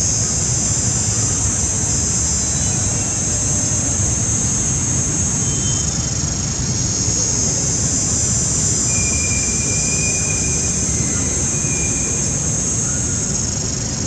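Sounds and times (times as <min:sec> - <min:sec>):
cicadas droning: 0:00.0 - 0:14.0
faint thin whistle: 0:08.8 - 0:12.4.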